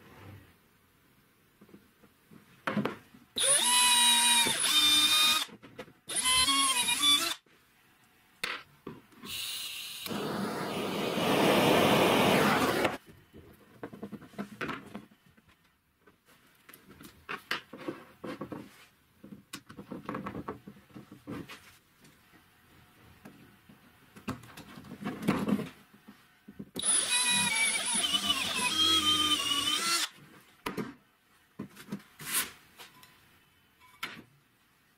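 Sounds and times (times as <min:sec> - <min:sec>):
drill whining into plastic: 0:03.4 - 0:07.4, 0:26.8 - 0:30.2
gas torch flame burning: 0:10.0 - 0:13.0.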